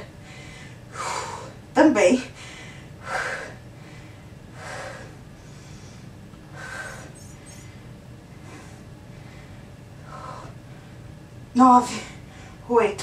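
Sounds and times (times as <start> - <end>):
woman breathing hard: 0.2 - 1.7, 2.3 - 11.1.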